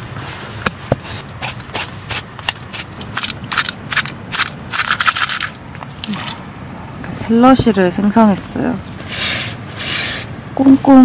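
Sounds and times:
aluminium can crinkling: 1.4 - 6.4.

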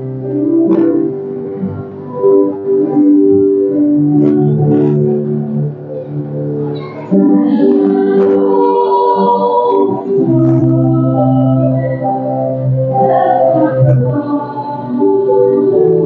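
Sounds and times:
voices singing: 6.8 - 16.0.

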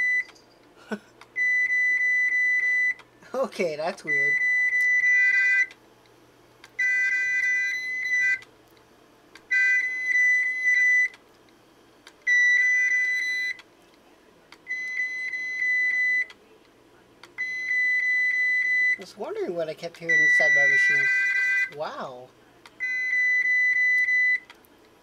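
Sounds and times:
hard drive beeping: 4.0 - 5.8, 6.8 - 8.5, 9.5 - 11.2, 12.2 - 13.6, 14.6 - 16.4, 17.4 - 19.1, 20.0 - 21.8, 22.7 - 24.5.

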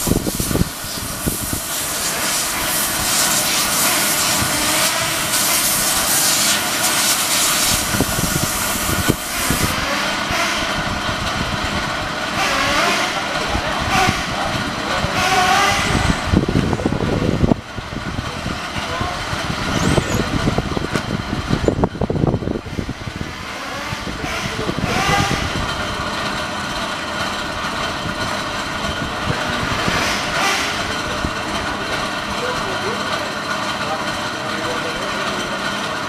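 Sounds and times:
loud steady hiss: 0.0 - 10.3
electric motor whining: 0.1 - 10.9.

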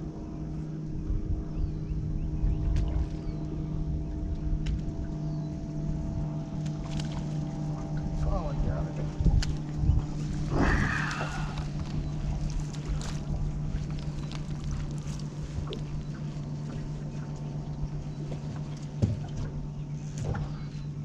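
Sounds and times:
wind on microphone: 0.0 - 6.4, 7.0 - 17.0
boat motor humming: 0.0 - 21.0.

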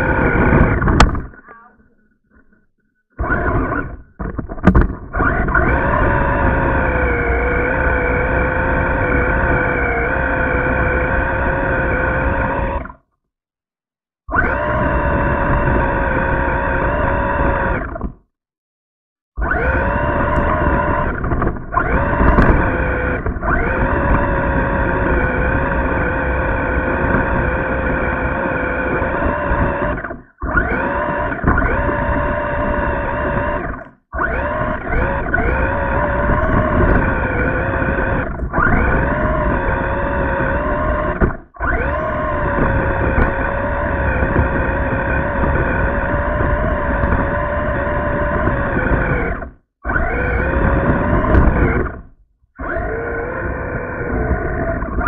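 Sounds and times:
toy car motor whining: 0.0 - 4.2, 5.1 - 13.1, 14.4 - 18.1, 19.4 - 55.0.

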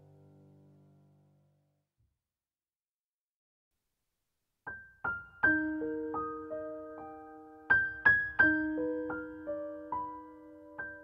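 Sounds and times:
slow piano music: 0.0 - 1.7, 4.7 - 11.0.

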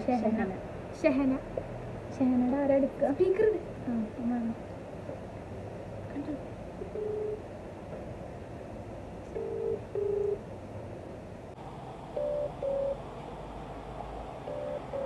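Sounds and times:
phone ringback double beeps: 6.9 - 7.4, 9.4 - 10.4, 12.2 - 13.0, 14.5 - 15.0.

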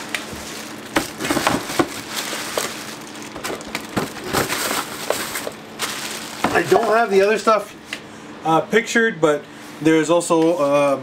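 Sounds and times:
plastic bags crinkling: 0.0 - 7.6.

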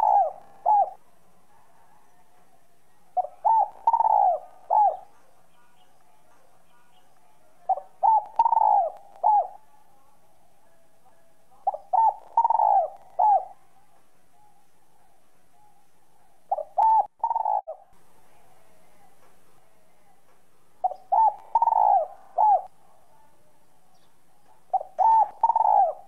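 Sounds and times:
dove cooing: 0.0 - 5.8, 7.7 - 9.8, 11.1 - 17.9, 20.8 - 22.8, 24.4 - 26.0.

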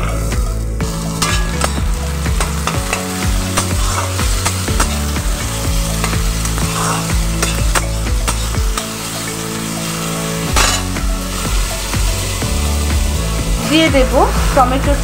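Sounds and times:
vegetables sizzling in hot oil: 0.0 - 15.0
steel spatula scraping a pan: 1.0 - 5.2, 5.9 - 11.6.

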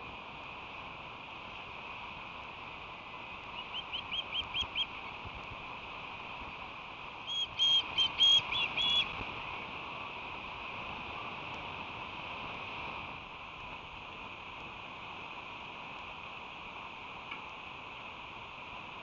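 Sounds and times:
steady hiss: 0.0 - 19.0
birds chirping: 3.5 - 5.0, 7.3 - 9.2.

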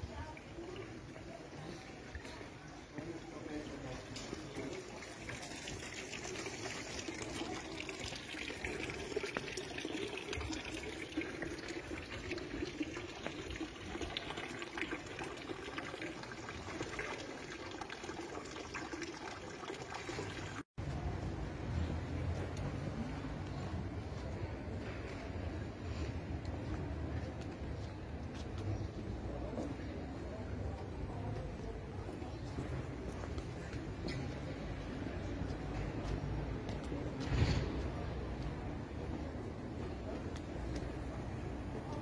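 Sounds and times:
fountain water splashing: 3.3 - 20.6
street rumble: 20.4 - 42.0.

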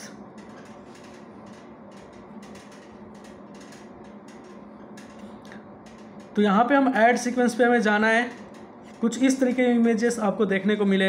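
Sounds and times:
low equipment hum: 0.0 - 11.0
faint irregular clicks: 0.3 - 6.4.

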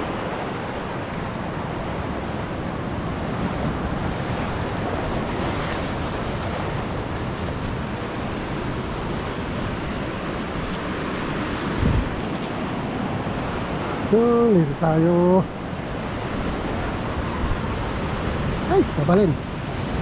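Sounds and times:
wind buffeting microphone: 0.0 - 14.2.

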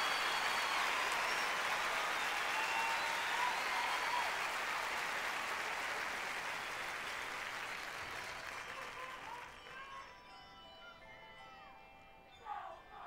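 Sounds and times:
stadium crowd applauding: 0.0 - 10.2.

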